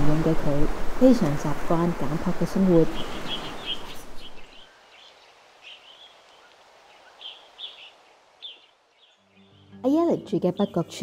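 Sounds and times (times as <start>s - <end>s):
outdoor background noise: 0.0s - 11.0s
small bird chirping: 2.8s - 11.0s.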